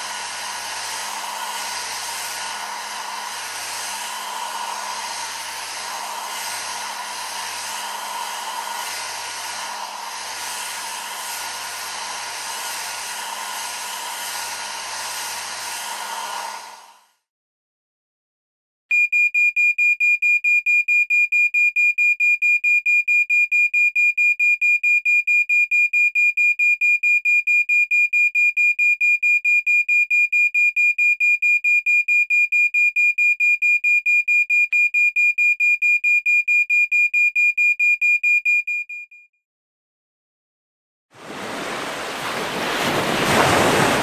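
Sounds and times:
smoke detector alarm beeping: 0:18.9 - 0:39.3.

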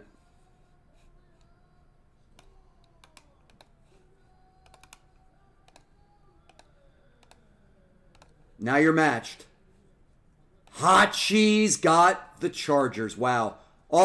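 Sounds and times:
keyboard and mouse clicks: 0:02.4 - 0:03.7, 0:04.6 - 0:05.9, 0:06.5 - 0:07.4, 0:08.1 - 0:08.4.

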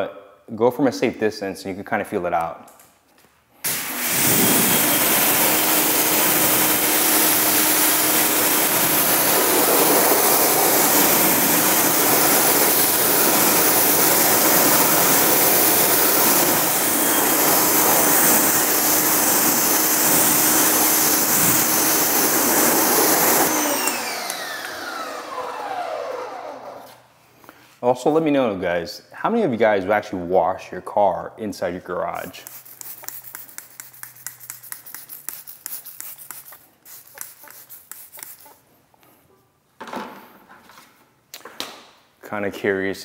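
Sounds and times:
water spraying hard: 0:03.7 - 0:23.9
pressure washer motor hum: 0:03.7 - 0:26.8.

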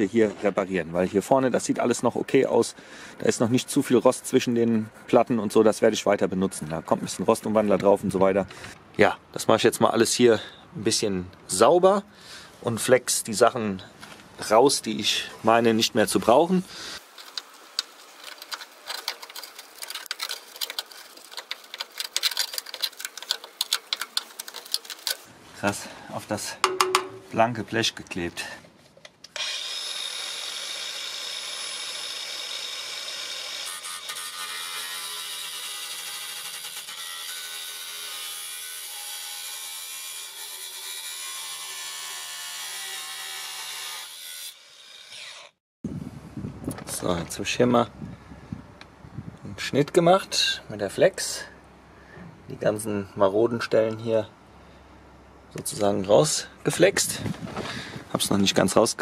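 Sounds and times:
angle grinder cutting steel: 0:29.3 - 0:45.6.

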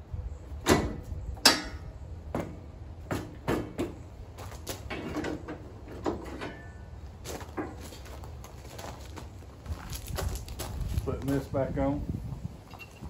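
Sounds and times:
metal hitch clanking and knocking: 0:00.6 - 0:04.0, 0:04.7 - 0:08.0.

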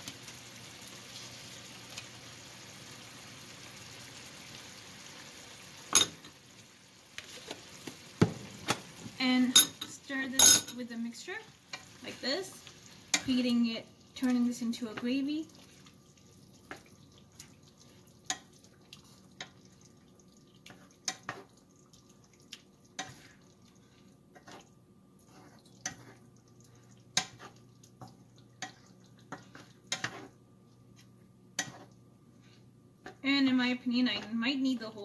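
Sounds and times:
wooden spoon tapping a pan: 0:08.2 - 0:08.8.

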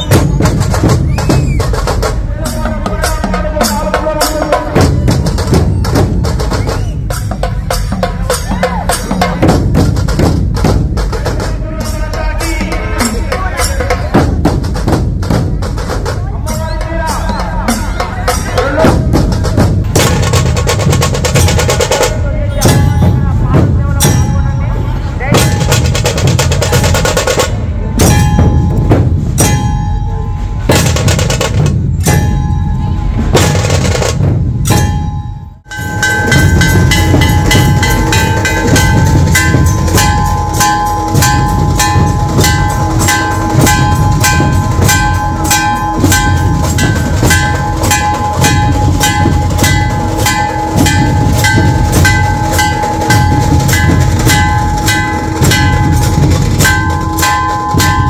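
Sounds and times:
barrel drums drumming: 0:00.0 - 0:58.0
steady ringing tone: 0:34.7 - 0:58.0.

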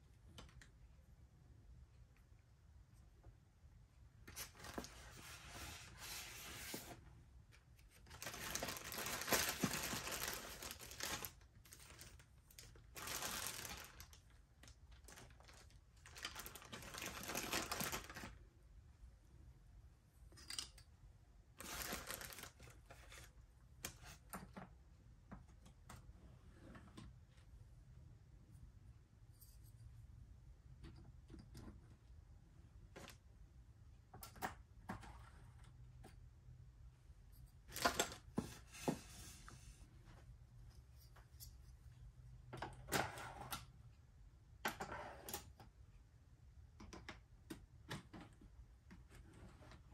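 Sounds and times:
plastic bags crinkling: 0:08.1 - 0:18.4, 0:21.6 - 0:22.9.

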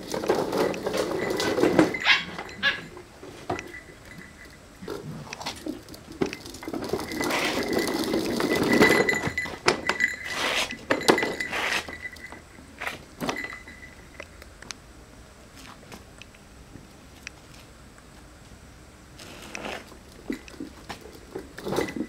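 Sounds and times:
plastic toy car rolling on paving: 0:00.0 - 0:02.8, 0:04.8 - 0:12.2, 0:19.2 - 0:22.0.

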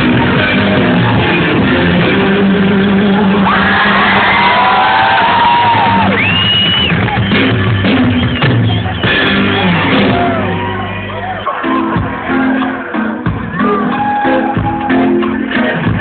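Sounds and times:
drums: 0:00.0 - 0:16.0
live rock band playing: 0:00.0 - 0:16.0
low bass: 0:00.0 - 0:16.0.

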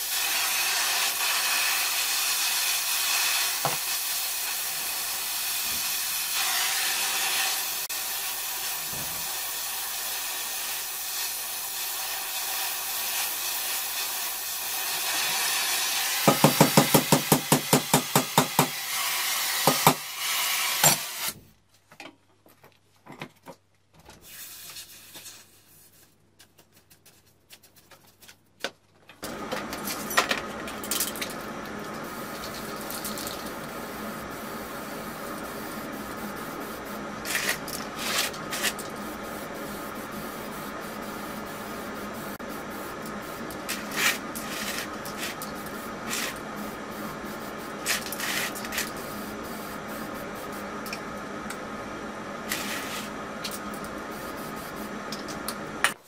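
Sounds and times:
spray-paint can hissing: 0:00.0 - 0:17.3, 0:32.0 - 0:50.6, 0:53.8 - 0:54.9
gas torch hissing: 0:00.0 - 0:21.4, 0:31.2 - 0:55.9.

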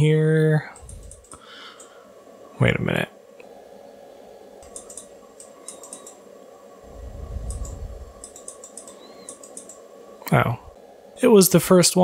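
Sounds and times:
keyboard keys clicking: 0:04.6 - 0:06.2, 0:07.4 - 0:09.8
low rumble: 0:06.8 - 0:08.2.

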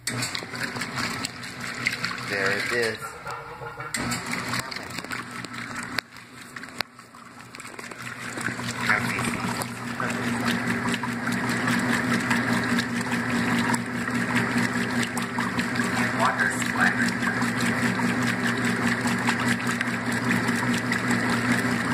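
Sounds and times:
washing machine motor hum: 0:00.0 - 0:21.9
water pumping out: 0:00.0 - 0:21.9
washing machine clicks: 0:02.9 - 0:06.1.

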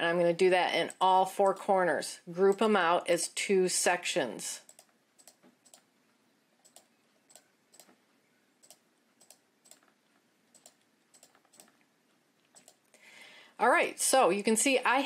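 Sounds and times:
computer mouse clicks: 0:04.6 - 0:05.9, 0:06.6 - 0:08.0, 0:08.6 - 0:12.8.

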